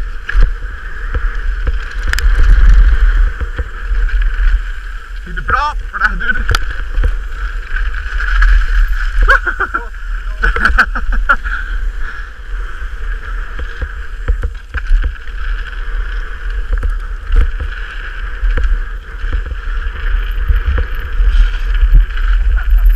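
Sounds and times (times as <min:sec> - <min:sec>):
bike knocks and rattles: 0:00.0 - 0:04.5, 0:06.2 - 0:09.8, 0:10.4 - 0:11.4, 0:13.4 - 0:15.8, 0:16.5 - 0:22.9
tyres rolling over gravel: 0:00.0 - 0:22.9
wind rumble on microphone: 0:00.0 - 0:22.9.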